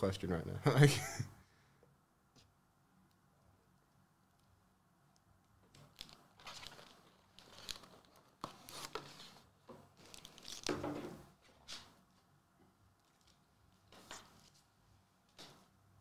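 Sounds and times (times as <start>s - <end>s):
foil wrappers crinkling: 5.9s - 9.4s.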